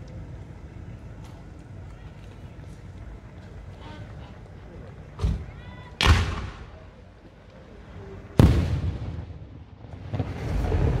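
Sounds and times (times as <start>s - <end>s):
fireworks bursting: 8.4s - 11.0s.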